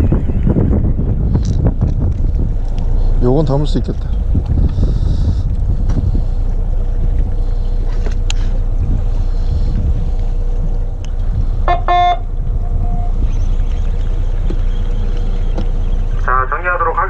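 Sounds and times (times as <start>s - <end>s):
low rumble of wind and boat: 0.0s - 17.0s
boat horn blasts: 11.6s - 13.2s.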